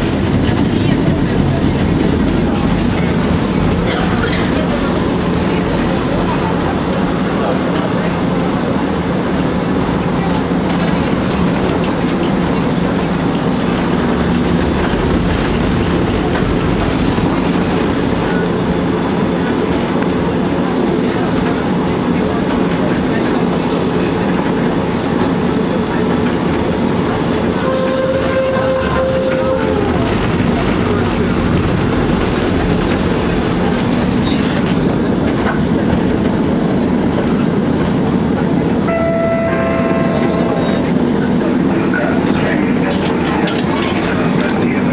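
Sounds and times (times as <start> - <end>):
tram wheels on rails: 0.0 - 44.9.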